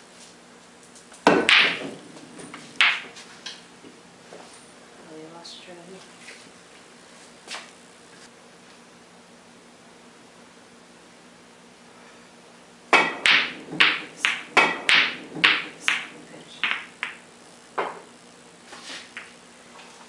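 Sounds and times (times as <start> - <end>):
pool cue striking ball: 1.2 - 3.2, 12.9 - 17.2
pool balls clacking: 1.2 - 3.6, 12.9 - 17.2.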